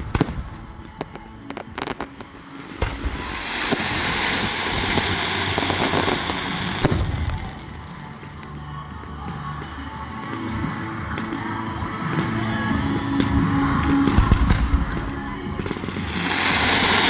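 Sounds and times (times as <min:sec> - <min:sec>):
firework bangs: 0:00.0 - 0:08.4, 0:13.2 - 0:17.0
firework crackling hiss: 0:00.0 - 0:08.5, 0:14.0 - 0:17.0.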